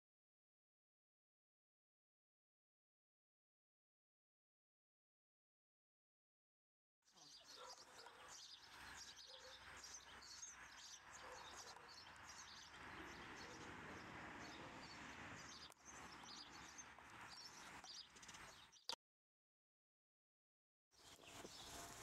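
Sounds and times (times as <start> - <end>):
small birds chirping: 7.1 - 19.0, 21.0 - 22.0.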